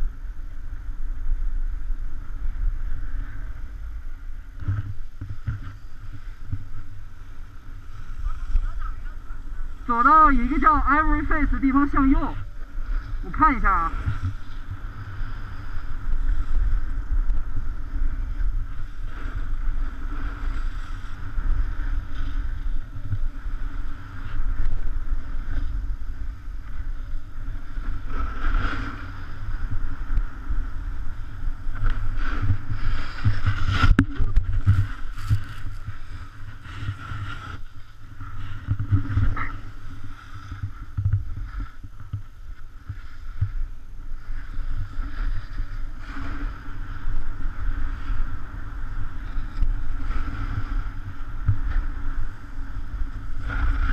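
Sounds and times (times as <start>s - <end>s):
wind buffeting microphone: 0.0s - 53.9s
ski edges scraping packed snow: 31.0s - 42.1s.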